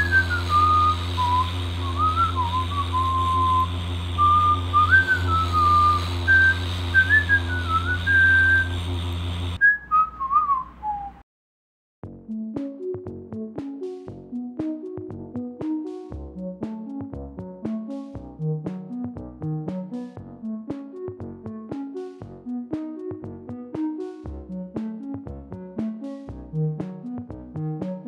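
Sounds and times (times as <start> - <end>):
person whistling a tune: 0.0 - 8.7, 9.6 - 11.2
motorcycle engine idling: 0.0 - 9.6.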